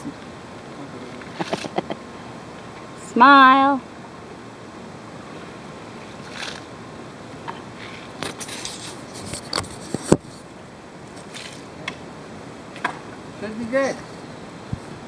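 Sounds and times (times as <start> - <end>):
shovel scraping stony soil: 6.2 - 6.7, 7.8 - 10.2.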